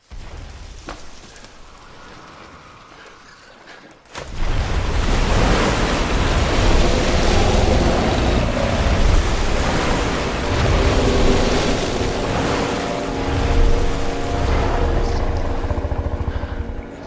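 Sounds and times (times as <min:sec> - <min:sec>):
water crashing with deep rumble: 0:04.2 - 0:17.0.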